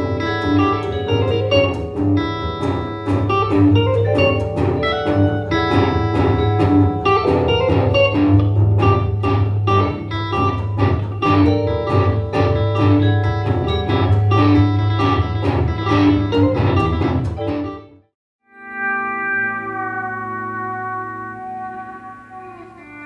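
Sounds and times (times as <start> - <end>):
upright double bass: 0.0 - 17.5
electric guitar: 0.0 - 23.0.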